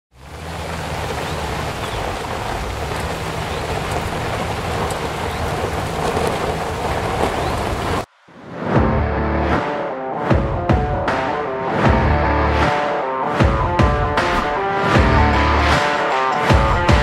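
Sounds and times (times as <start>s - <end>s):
rushing rain-like noise: 0.1s - 8.1s.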